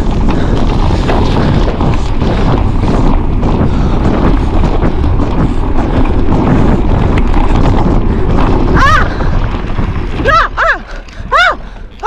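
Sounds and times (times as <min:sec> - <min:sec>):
low rumble: 0:00.0 - 0:12.0
wind buffeting microphone: 0:00.0 - 0:12.0.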